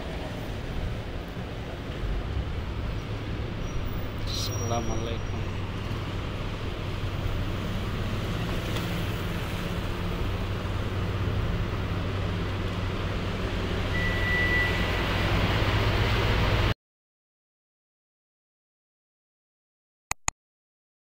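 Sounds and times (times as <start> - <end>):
cars passing: 0.0 - 16.7
low engine hum: 0.0 - 16.7
short high beep: 13.9 - 14.9.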